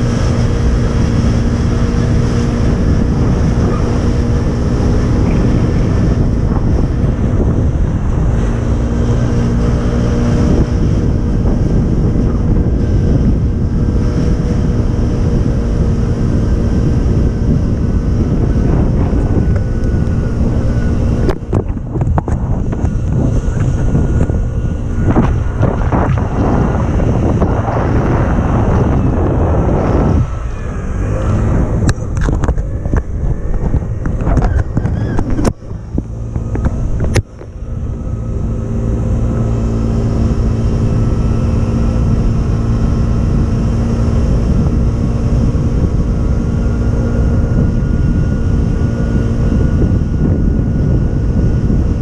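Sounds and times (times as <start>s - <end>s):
motorbike engine running: 0.0s - 52.0s
wind buffeting microphone: 0.0s - 52.0s.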